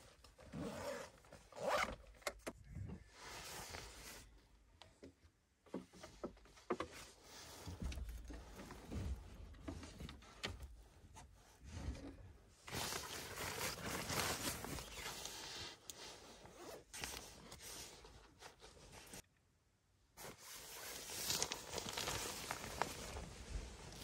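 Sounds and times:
sleeping bag fabric rustling: 0.6 - 1.8, 12.7 - 19.2, 20.2 - 24.0.

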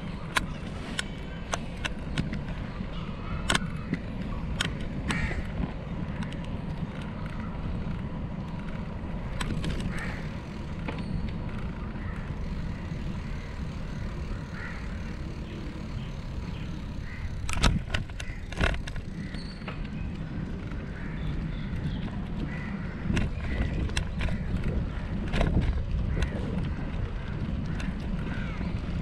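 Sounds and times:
wind and road noise rumble: 0.0 - 29.0.

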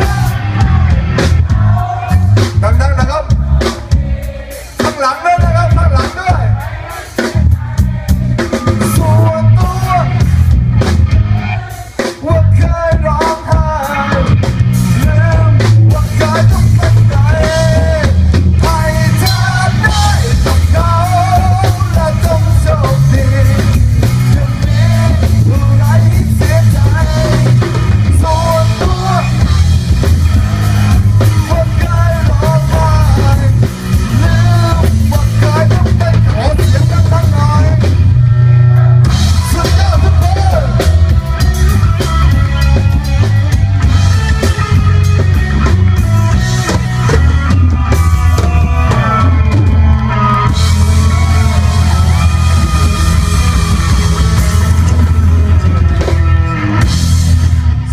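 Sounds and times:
lead singer singing: 0.0 - 56.2
drum kit: 0.0 - 57.9
electric guitar: 8.2 - 57.9.

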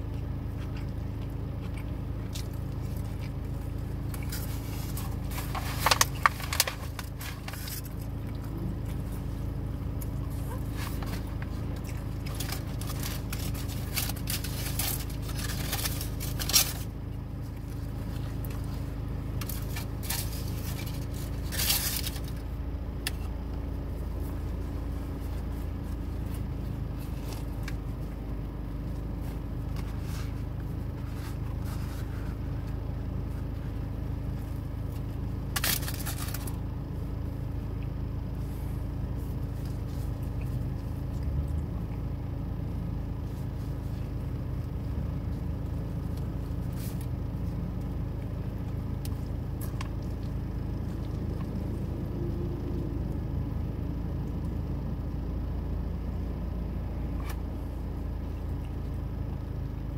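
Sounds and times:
low car cabin hum: 0.0 - 59.9
food packaging crinkling: 4.2 - 8.2, 10.8 - 16.9, 35.5 - 36.6.

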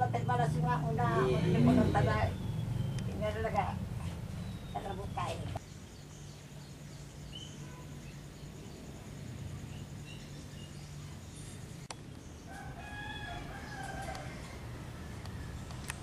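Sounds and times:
faint bird chirps: 0.0 - 12.7
rooster crowing: 12.5 - 15.6.

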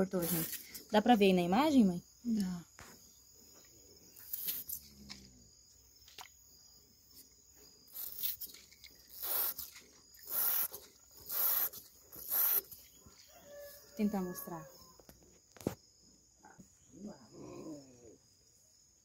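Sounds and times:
insects faint high tone: 0.0 - 19.0
aerosol spray hissing: 0.2 - 0.6, 9.1 - 12.8.

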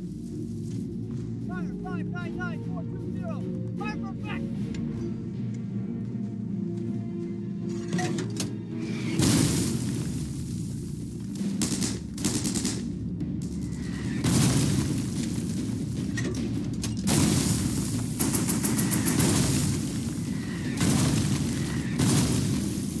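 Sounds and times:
dramatic background music: 0.0 - 23.0
artillery explosions: 8.9 - 23.0
rapid gunfire: 11.3 - 23.0.

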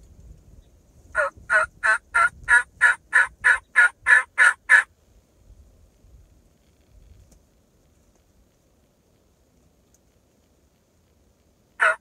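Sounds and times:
turkey yelps: 1.2 - 4.9, 11.8 - 12.0.

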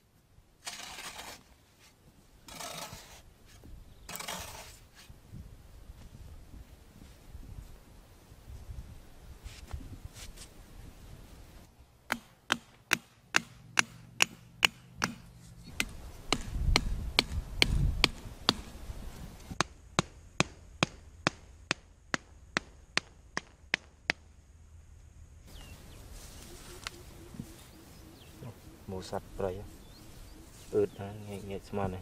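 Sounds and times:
hammer striking stakes: 12.1 - 18.8, 19.5 - 24.3.

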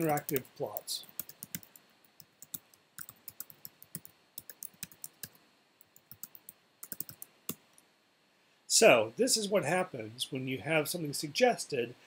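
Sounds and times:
keyboard keys clicking: 6.0 - 7.3.

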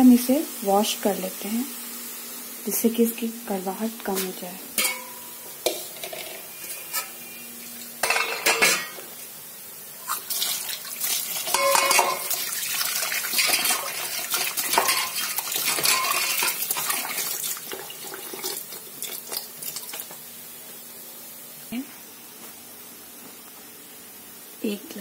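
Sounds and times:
steel bowl clanking: 4.8 - 7.2, 8.0 - 9.0, 10.0 - 19.9.

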